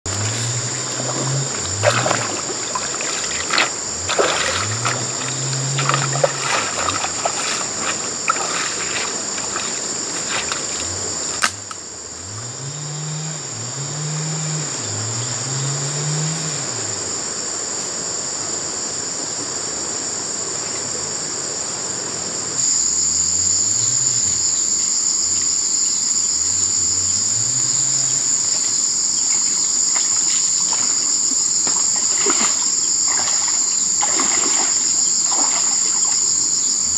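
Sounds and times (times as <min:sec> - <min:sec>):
high drone of insects: 0:00.0 - 0:36.9
feet splashing through shallow water: 0:00.1 - 0:11.6, 0:28.4 - 0:36.9.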